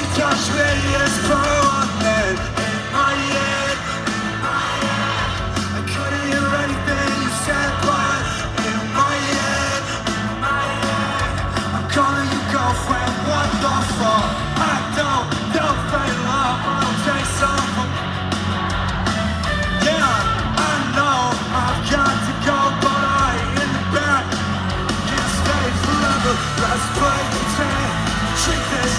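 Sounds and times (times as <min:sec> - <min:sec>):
pop-punk band playing: 0:00.0 - 0:28.9
sung lead vocal: 0:00.0 - 0:28.9.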